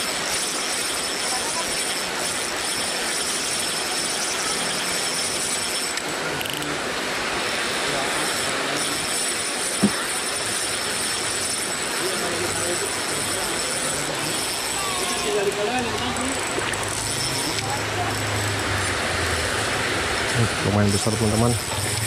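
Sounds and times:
spinning reel being cranked: 0.0s - 6.7s, 7.4s - 22.0s
rushing hiss: 0.0s - 22.0s.

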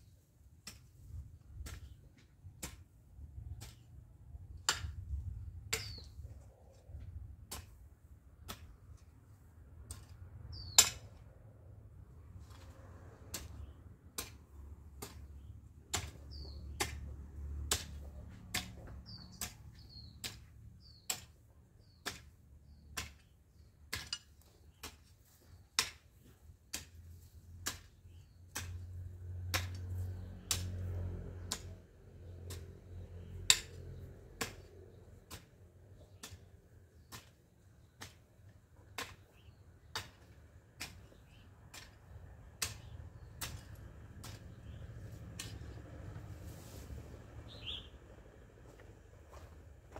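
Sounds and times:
hoe striking soil: 0.6s - 3.9s, 4.6s - 6.2s, 7.4s - 9.1s, 9.8s - 11.2s, 12.4s - 46.9s
bird chirps: 5.8s - 6.2s, 10.5s - 11.0s, 16.2s - 16.8s, 19.0s - 21.2s, 47.4s - 48.0s.

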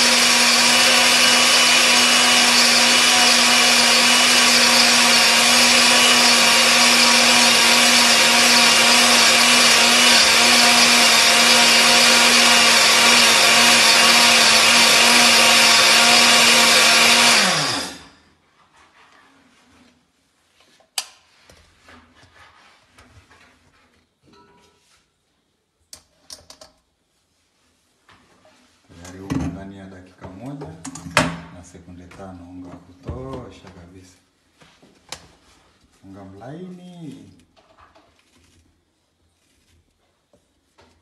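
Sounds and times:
electric mill grinding grain: 0.0s - 18.2s.

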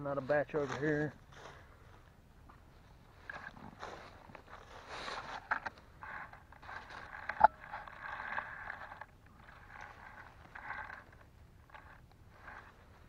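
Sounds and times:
dry leaves crunching and rustling: 3.2s - 5.5s.

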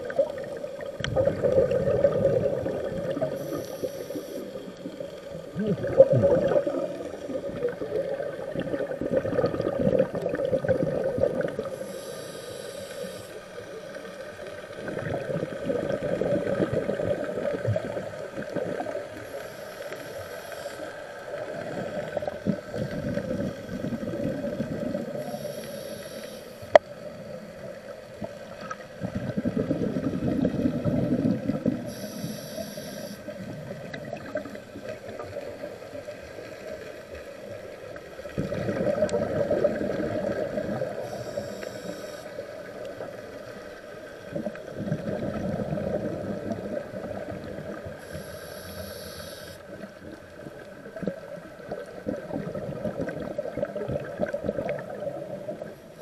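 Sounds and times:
exhaled bubbles gurgling: 0.0s - 56.0s
regulator inhalation hisses: 3.3s - 4.7s, 11.7s - 13.9s, 19.3s - 21.1s, 25.1s - 26.8s, 31.9s - 33.3s, 41.0s - 42.5s, 48.0s - 49.6s.

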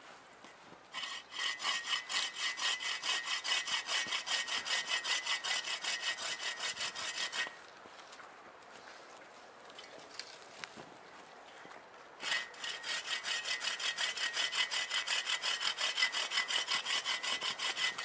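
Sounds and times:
bow saw cutting branch: 1.0s - 7.6s, 12.2s - 18.0s.

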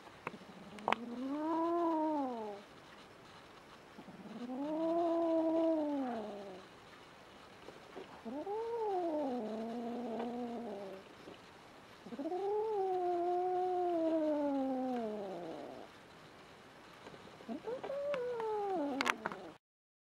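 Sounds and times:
kitten yowling: 17.5s - 19.4s.

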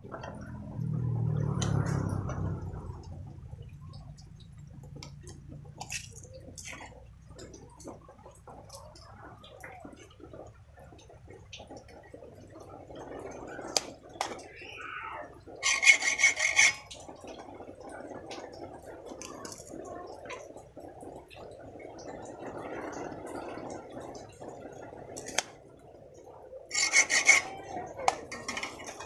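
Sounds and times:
hand tools rubbing and scraping: 15.6s - 17.0s, 26.7s - 29.0s.

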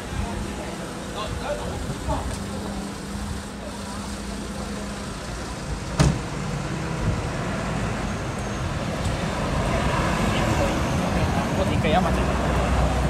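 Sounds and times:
low traffic rumble: 0.0s - 13.0s
sharp knock: 6.0s - 6.2s.

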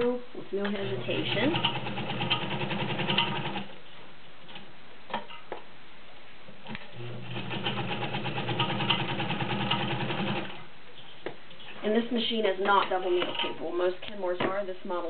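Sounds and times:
sewing machine stitching: 1.0s - 3.7s, 6.9s - 10.6s.

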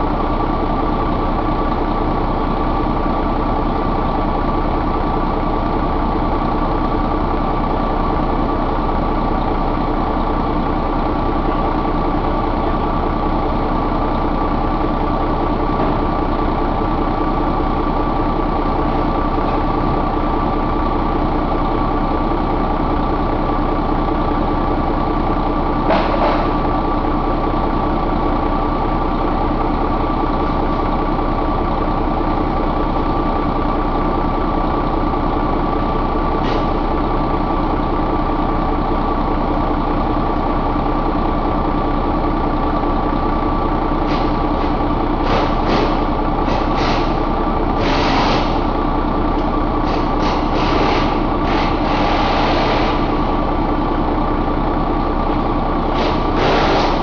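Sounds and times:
diesel truck engine idling: 0.0s - 57.0s
short air hisses: 56.0s - 57.0s.

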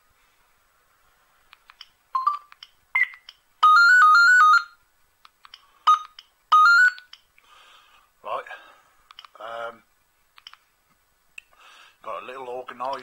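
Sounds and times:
phone key beeps and clicks: 2.2s - 4.8s, 5.9s - 7.2s
two-note trill ringtone: 3.6s - 4.8s, 5.9s - 7.0s.

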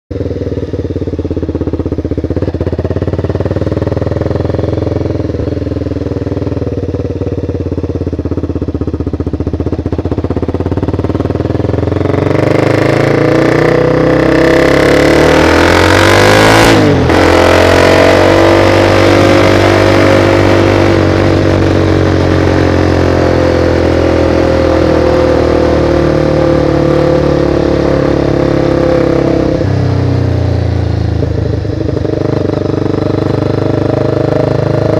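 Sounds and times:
motorcycle engine: 0.1s - 34.9s.

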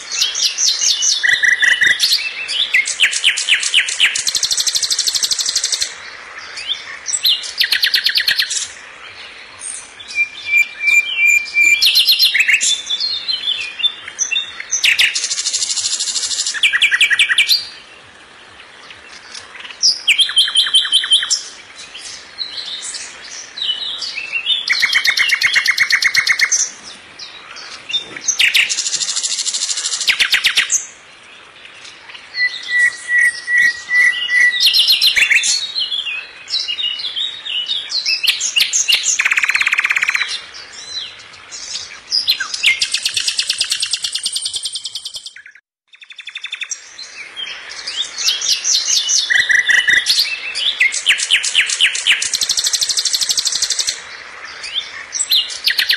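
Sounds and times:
songbird trills and chirps: 0.0s - 55.9s.

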